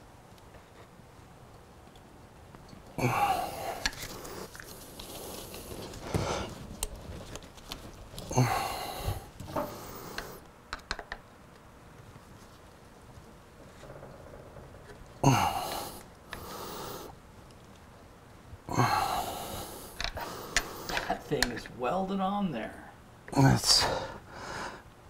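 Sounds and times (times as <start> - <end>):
man breathing out hard: 3.0 - 4.5, 8.3 - 10.4, 15.2 - 17.1, 18.7 - 21.1, 23.8 - 24.9.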